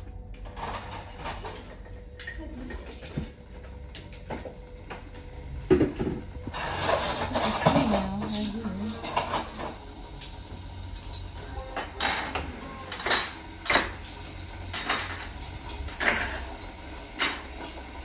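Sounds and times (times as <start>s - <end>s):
dishes and utensils clattering: 0.4s - 5.0s, 5.7s - 18.0s
television voices: 1.2s - 14.6s.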